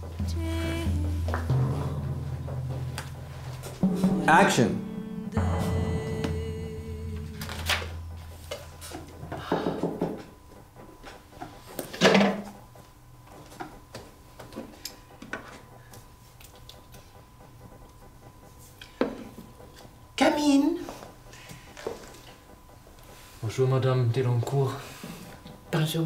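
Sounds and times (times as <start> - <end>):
steady low tone: 0.0 - 9.8.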